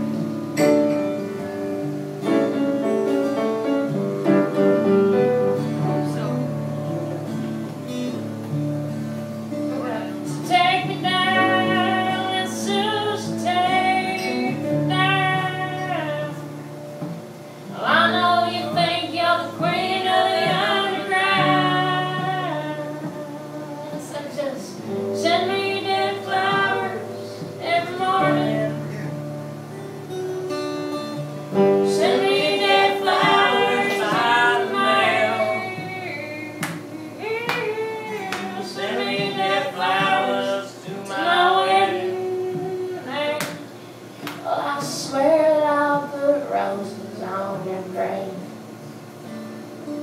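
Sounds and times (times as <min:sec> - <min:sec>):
strummed acoustic guitar: 0:00.0 - 0:50.0
woman singing: 0:09.7 - 0:16.8, 0:17.7 - 0:29.1, 0:31.8 - 0:48.6.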